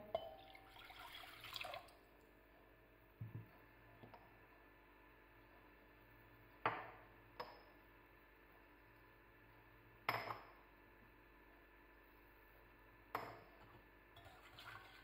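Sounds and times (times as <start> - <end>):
glass bowls clinking: 0.0 - 1.7.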